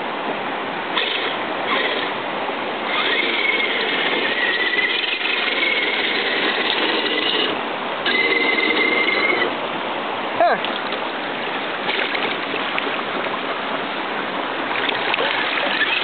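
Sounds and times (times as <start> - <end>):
creek water rushing: 0.0 - 16.0
small electric motor whining: 1.0 - 2.1, 2.9 - 9.5.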